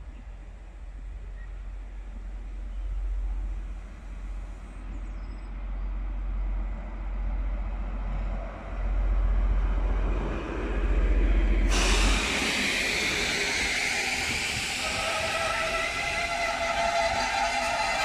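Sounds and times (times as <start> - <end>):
diesel locomotive engine rumble: 0.0 - 18.0
loud hiss: 11.7 - 18.0.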